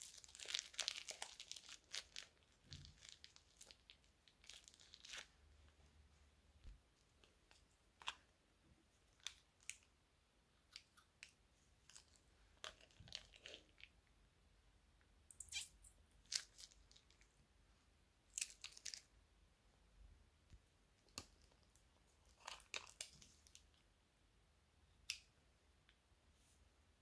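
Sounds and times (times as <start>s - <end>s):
plastic bag crinkling: 0.0s - 5.3s.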